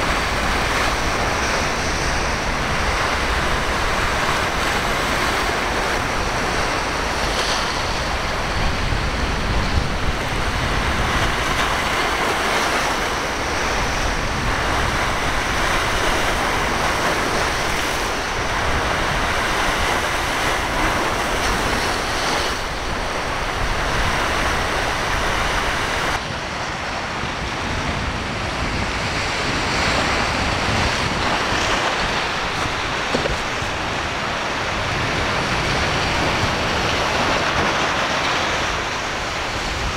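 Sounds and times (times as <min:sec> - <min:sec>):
surf and breaking waves: 0:00.0 - 0:39.9
wind buffeting microphone: 0:00.0 - 0:39.9.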